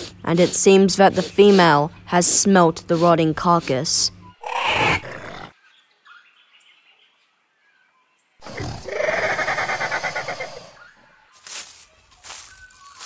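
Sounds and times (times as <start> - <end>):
rasping dinosaur roar: 8.4 - 10.8.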